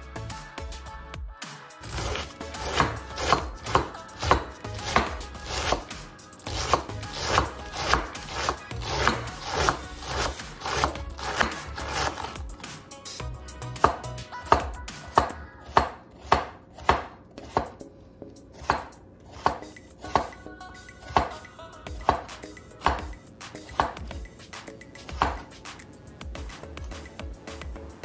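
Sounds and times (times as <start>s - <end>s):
knife chopping on wooden board: 1.8s - 12.8s, 13.8s - 17.8s, 18.5s - 20.4s, 21.1s - 21.4s, 22.0s - 24.3s, 25.0s - 25.6s.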